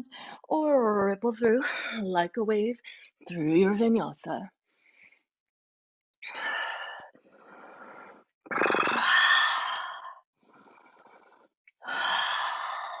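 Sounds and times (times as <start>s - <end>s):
forceful mouth exhalations: 8.4s - 11.3s.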